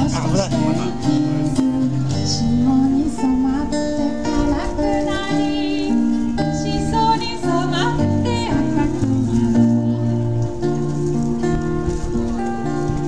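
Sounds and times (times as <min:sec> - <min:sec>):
strummed acoustic guitar: 0:00.0 - 0:13.0
woman singing into a microphone: 0:00.4 - 0:10.4.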